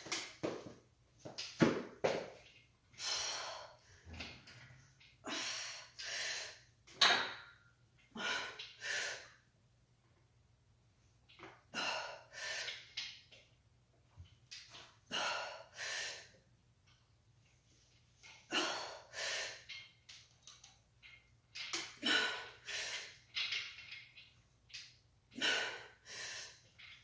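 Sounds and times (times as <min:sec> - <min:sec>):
woman breathing hard: 0:05.2 - 0:06.7, 0:08.1 - 0:09.5, 0:11.7 - 0:12.9, 0:15.1 - 0:16.4, 0:18.5 - 0:19.7, 0:25.3 - 0:26.7.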